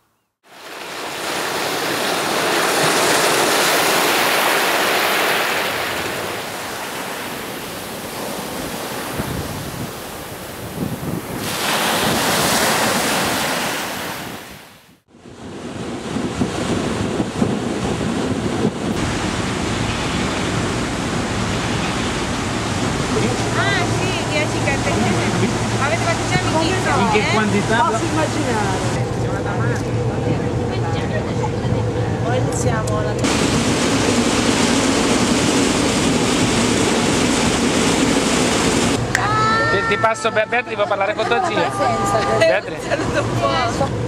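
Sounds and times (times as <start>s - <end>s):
surf breaking on a beach: 0.4s - 29.3s, 33.2s - 44.0s
wind noise: 5.1s - 40.4s
low engine drone: 18.0s - 44.0s.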